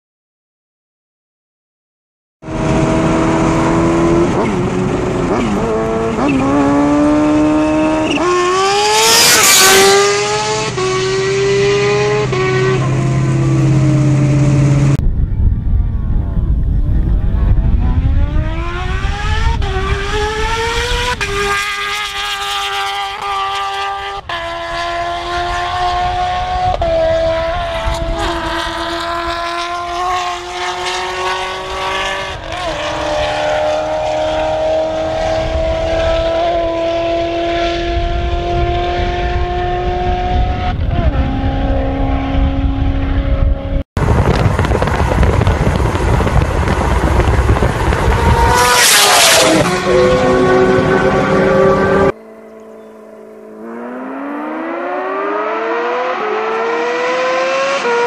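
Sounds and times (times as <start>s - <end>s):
wind and road noise: 2.4s - 58.0s
motorcycle engine at high revs: 2.5s - 15.0s, 17.8s - 58.0s
loud rush: 44.0s - 52.2s.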